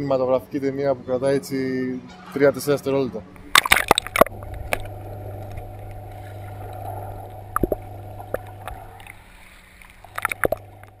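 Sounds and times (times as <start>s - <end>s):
steady low hum: 3.4s - 11.0s
water sloshing and splashing: 3.4s - 11.0s.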